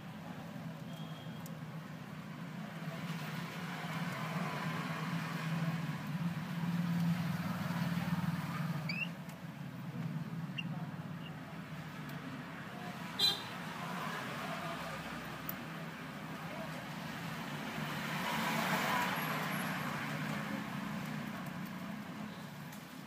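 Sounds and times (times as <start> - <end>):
vehicle engine rumble: 0.0 - 23.0
budgerigar chirps: 8.9 - 9.1.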